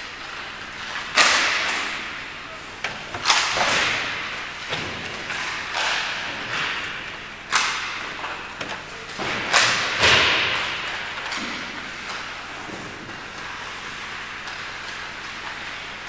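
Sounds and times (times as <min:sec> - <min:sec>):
sharp thuds echoing in a hall: 0:01.1 - 0:13.2.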